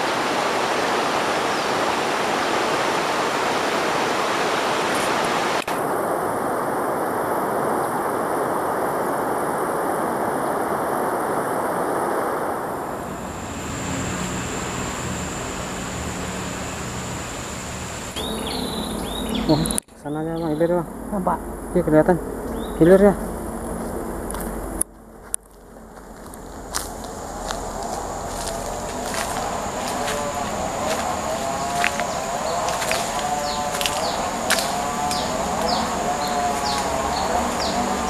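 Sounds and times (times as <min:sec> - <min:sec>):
river rushing: 0:00.0 - 0:19.8, 0:25.8 - 0:38.0.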